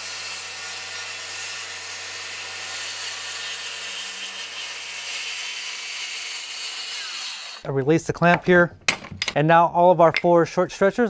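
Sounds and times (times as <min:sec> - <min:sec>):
circular saw cutting wood: 0:00.0 - 0:07.7.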